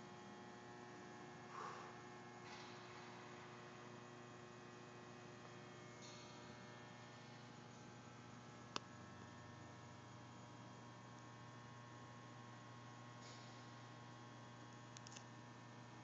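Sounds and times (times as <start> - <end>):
electrical mains hum: 0.0 - 16.0
sharp click: 15.0 - 15.3.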